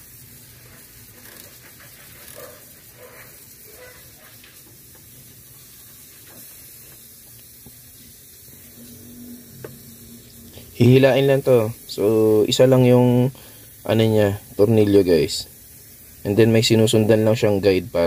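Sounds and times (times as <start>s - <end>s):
steady background hiss: 0.0s - 18.0s
ratchet wrench clicking: 1.1s - 1.6s.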